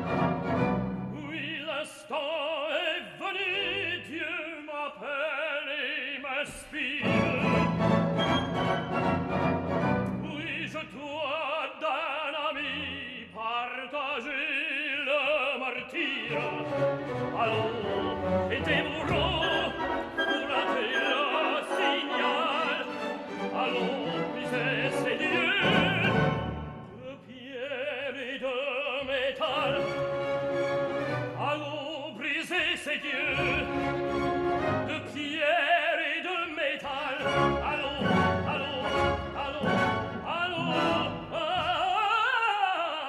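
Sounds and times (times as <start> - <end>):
orchestra playing: 0.0 - 1.8, 7.0 - 10.9, 16.1 - 27.1, 29.4 - 32.4, 33.0 - 35.5, 37.0 - 42.2
operatic tenor singing: 0.0 - 43.0.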